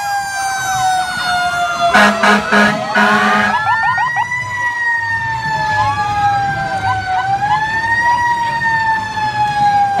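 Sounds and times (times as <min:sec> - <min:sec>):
emergency siren wailing: 0:00.0 - 0:10.0.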